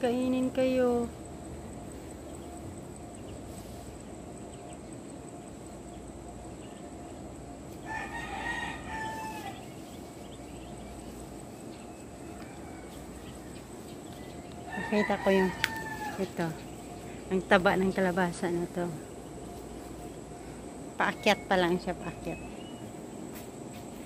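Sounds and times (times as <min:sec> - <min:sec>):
steady background noise: 0:00.0 - 0:24.0
rooster crowing: 0:07.8 - 0:09.8, 0:12.1 - 0:13.6, 0:14.5 - 0:16.7.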